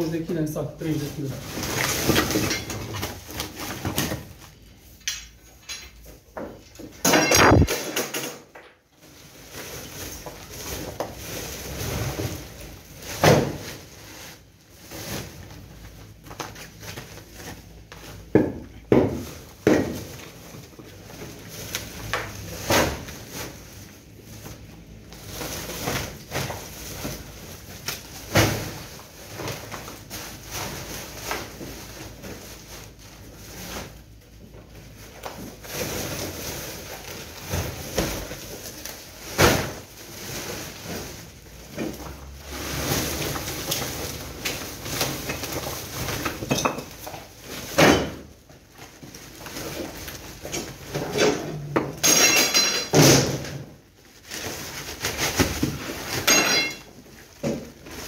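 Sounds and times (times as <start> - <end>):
plastic sacks rustling: 0.0 - 8.3, 8.9 - 58.0
rubble knocks and thuds: 18.2 - 20.3.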